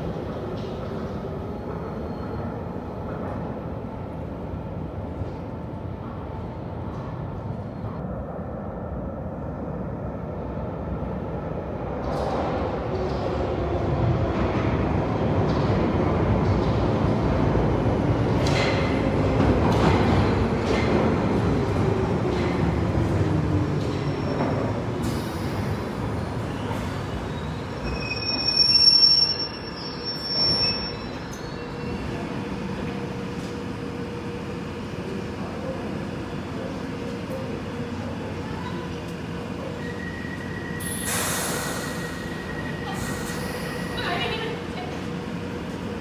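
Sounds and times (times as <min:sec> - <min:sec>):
train rumbling over rails: 0:00.0 - 0:28.7, 0:29.4 - 0:46.0
train doors opening tones: 0:18.2 - 0:33.8, 0:38.6 - 0:46.0
train brakes whining: 0:39.7 - 0:44.5.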